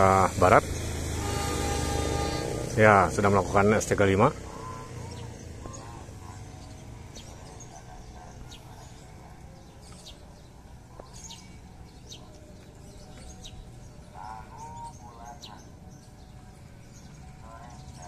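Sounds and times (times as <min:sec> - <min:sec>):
small birds chirping: 0:00.0 - 0:18.0
wavering bird call: 0:01.1 - 0:09.2, 0:10.9 - 0:18.0.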